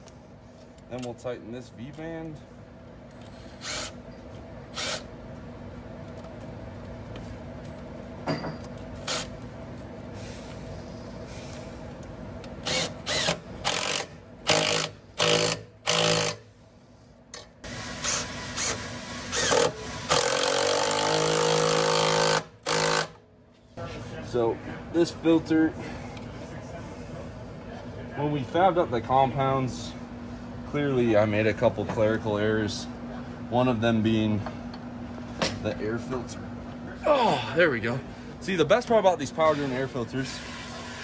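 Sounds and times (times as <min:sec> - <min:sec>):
steady low hum: 0:00.0 - 0:41.0
impact driver hammering: 0:12.7 - 0:16.4, 0:19.4 - 0:23.2.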